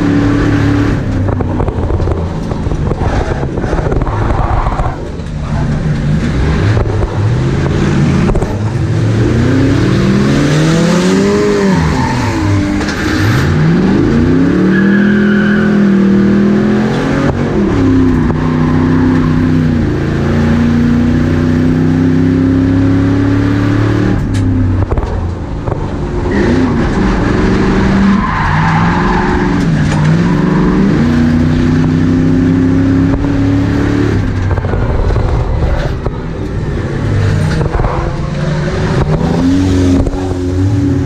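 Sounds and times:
car knocks and rattles: 1.0 - 8.7, 24.1 - 26.2, 34.2 - 40.3.

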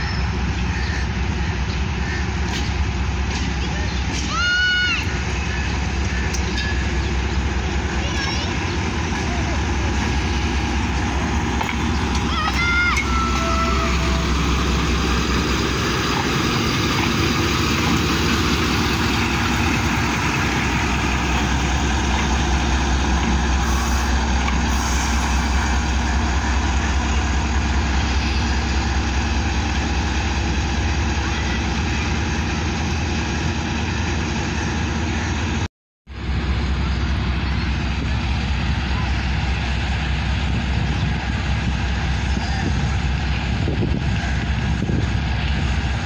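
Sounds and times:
diesel locomotive engine drone: 0.0 - 46.0.

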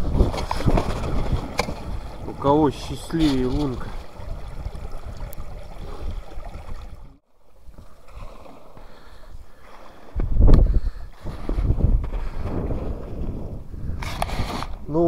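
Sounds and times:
wind buffeting microphone: 0.0 - 7.8, 8.9 - 15.0
water gurgling through ice channel: 0.0 - 10.5.

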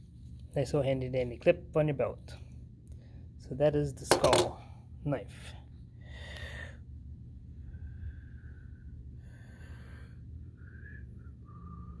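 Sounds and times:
low steady hum: 0.0 - 12.0
person breathing through nose: 7.9 - 10.7
faint whistling tones: 10.5 - 12.0.

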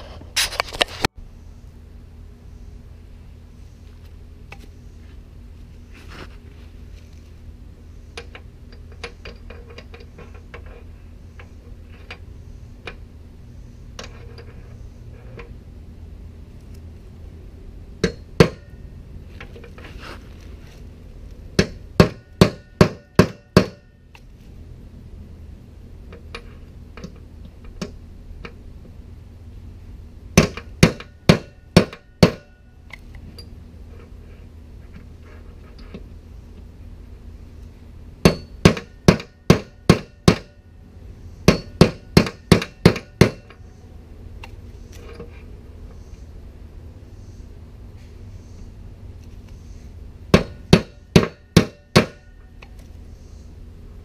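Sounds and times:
hammer striking metal punch: 18.0 - 18.8, 21.6 - 23.9, 30.4 - 32.6, 38.2 - 40.6, 41.4 - 43.5, 50.3 - 52.4.

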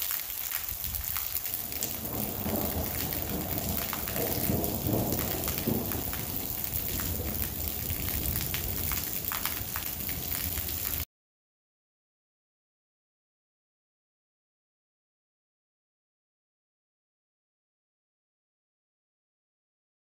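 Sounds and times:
heavy rain hissing: 0.0 - 11.0
raindrops ticking near microphone: 0.0 - 11.1
low rumble of thunder: 0.8 - 11.0.

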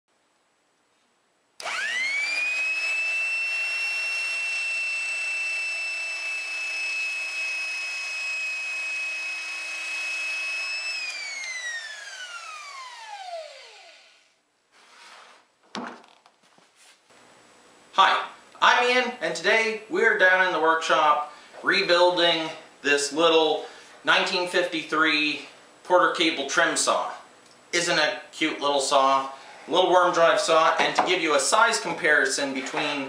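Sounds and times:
power saw whining: 1.6 - 14.3.

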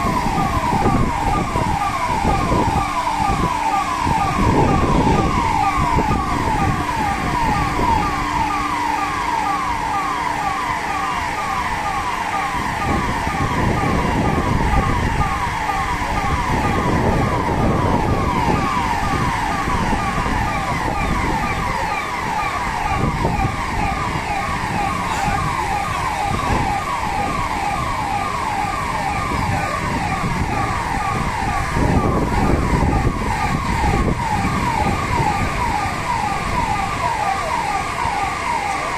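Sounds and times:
electronic emergency siren: 0.0 - 38.9.

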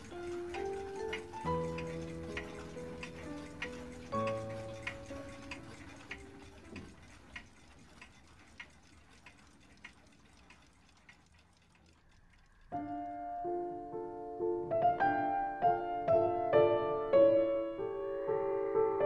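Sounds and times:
soft piano music: 0.0 - 7.4, 12.7 - 19.0
mechanical clock ticking: 0.0 - 13.1.

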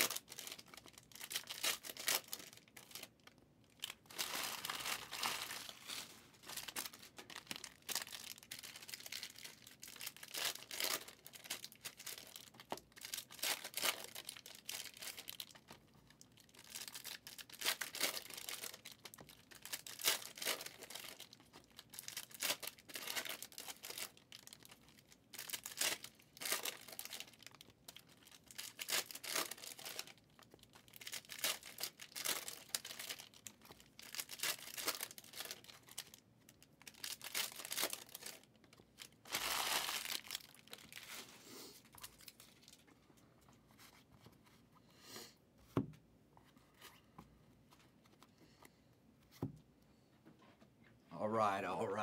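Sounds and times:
plastic wrappers crinkling: 0.0 - 43.0.

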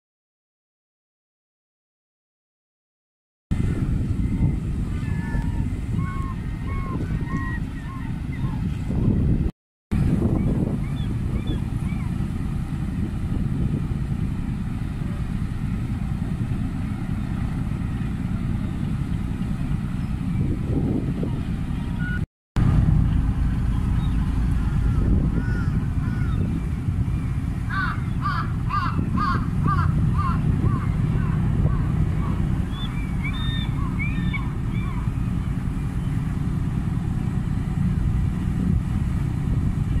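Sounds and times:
harbour machinery noise: 3.5 - 40.0
wind rumble: 3.5 - 40.0
gulls calling: 3.6 - 9.2, 10.0 - 40.0
engine idling: 10.0 - 40.0.

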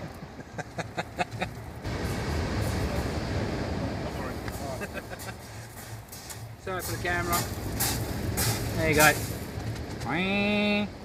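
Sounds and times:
surf breaking on shingle: 4.4 - 10.1.

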